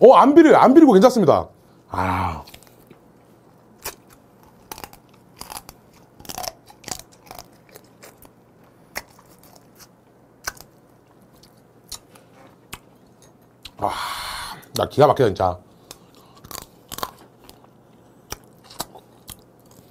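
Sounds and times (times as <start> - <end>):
person chewing crab meat: 2.4 - 13.8, 15.7 - 19.9.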